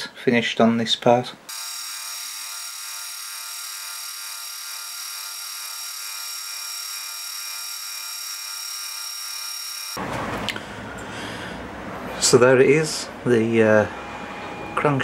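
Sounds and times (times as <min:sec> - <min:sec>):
milling machine drilling steel: 0:01.5 - 0:10.0.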